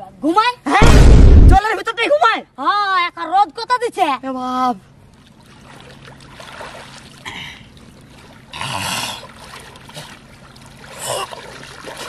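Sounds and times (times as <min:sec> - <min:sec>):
pond water splashing: 0:05.1 - 0:12.0.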